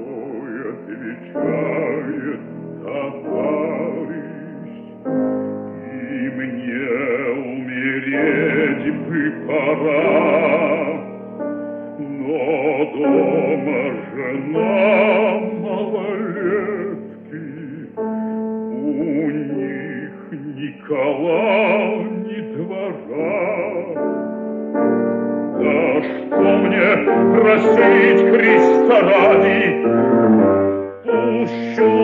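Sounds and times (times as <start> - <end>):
bass voice singing with vibrato: 0.0 - 4.9, 5.8 - 11.2, 12.0 - 18.0, 25.6 - 32.0
piano accompaniment: 0.0 - 32.0.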